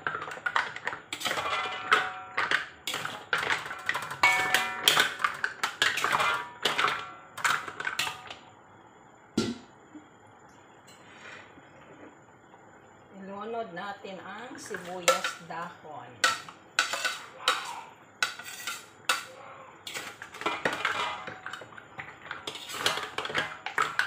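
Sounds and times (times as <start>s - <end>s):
spatula scraping metal wok: 16.2s - 24.0s.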